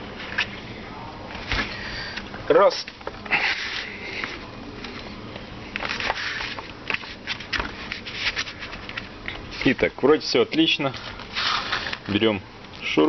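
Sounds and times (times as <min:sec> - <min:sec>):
plastic rubbing and scraping: 0:05.8 - 0:09.8, 0:10.9 - 0:12.1.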